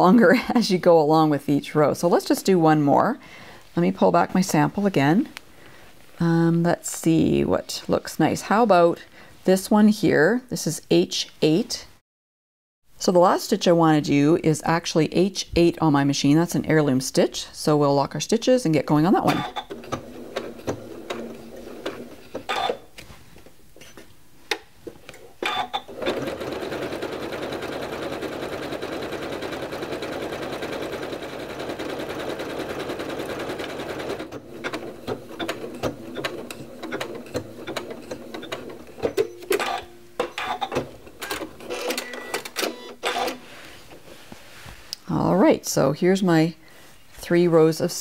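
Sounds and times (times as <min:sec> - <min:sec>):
sewing machine clicks and knocks: 0:25.4 - 0:42.0
sewing machine running: 0:25.9 - 0:39.0.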